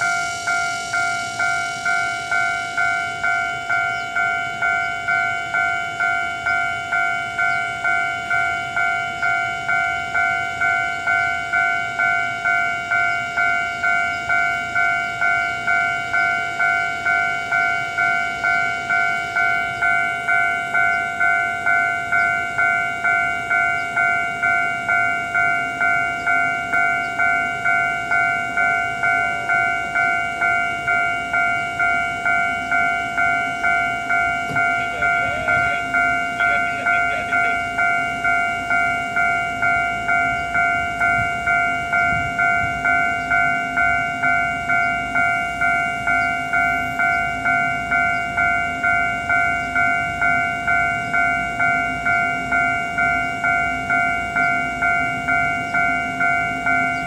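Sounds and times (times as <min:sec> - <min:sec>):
level crossing bell ringing: 0:00.0 - 0:57.0.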